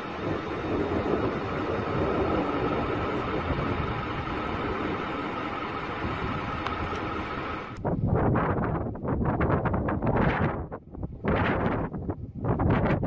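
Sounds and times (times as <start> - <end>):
vehicle interior rumble in rain: 0.0 - 7.8.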